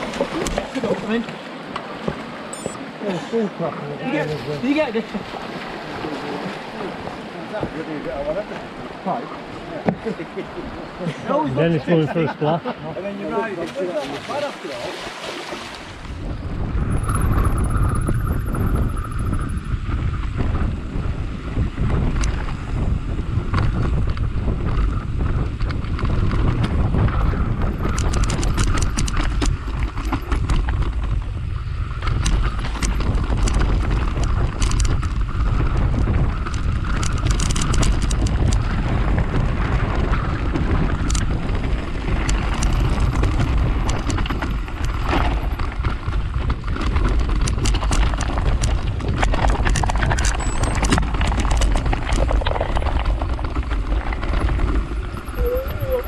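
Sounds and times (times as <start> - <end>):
bike tyres rolling over stones: 0.0 - 2.4, 16.0 - 56.0
wind buffeting microphone: 0.0 - 56.0
sharp clicks and rattles: 27.8 - 31.3, 32.0 - 38.7, 40.5 - 55.2.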